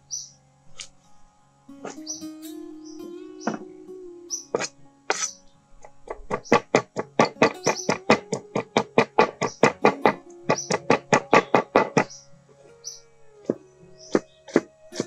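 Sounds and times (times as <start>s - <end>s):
guitar music: 1.7s - 15.0s
cleaver chopping on wooden board: 6.3s - 12.1s, 14.1s - 15.0s.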